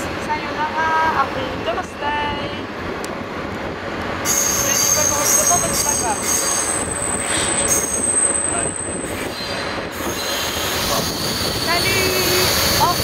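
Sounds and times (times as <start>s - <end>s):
train wheels running over tracks: 0.0s - 13.0s
high wheel squeal: 4.2s - 13.0s.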